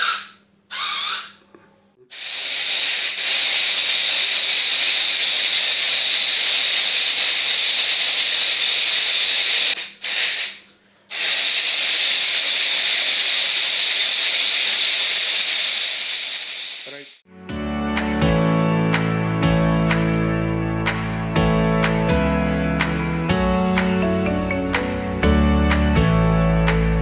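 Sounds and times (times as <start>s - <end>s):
toy car motors whirring: 2.1s - 17.0s.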